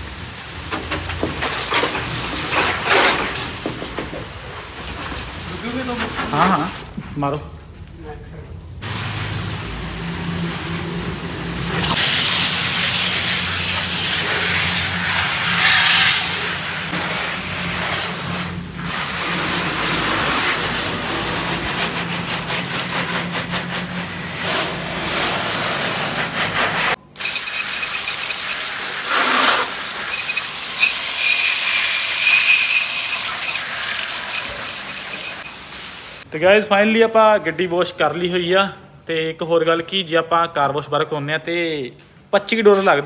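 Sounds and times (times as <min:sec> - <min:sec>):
hose water spraying on car: 0:00.0 - 0:06.9, 0:08.8 - 0:36.3.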